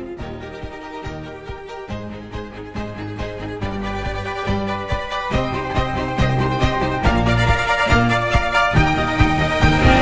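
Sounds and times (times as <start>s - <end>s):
violin melody: 0.0s - 10.0s.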